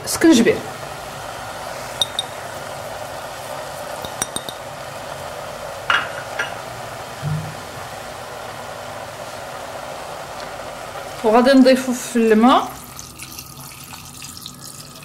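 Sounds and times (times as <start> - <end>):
food frying in oil: 0.0 - 15.0
utensil clinking against pot: 2.0 - 2.4, 4.0 - 4.6
soft knock: 7.2 - 7.6.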